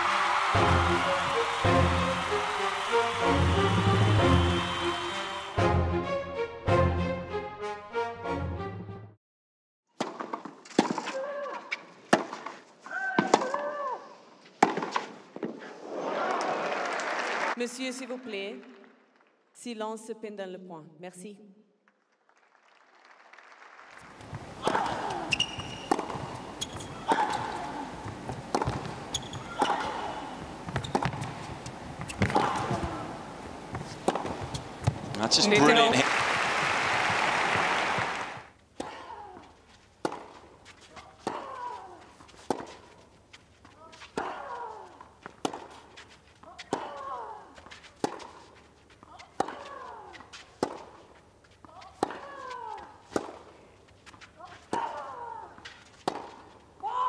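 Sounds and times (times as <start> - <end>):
intro music: 0.6 - 9.0
racket hitting tennis ball: 10.0 - 11.2, 12.1 - 12.6, 14.6 - 15.2, 24.2 - 35.2, 40.0 - 43.0, 45.2 - 56.9.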